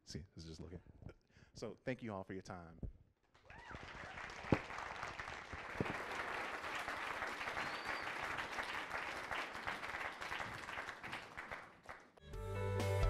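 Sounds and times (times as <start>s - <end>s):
audience applauding: 3.5s - 12.2s.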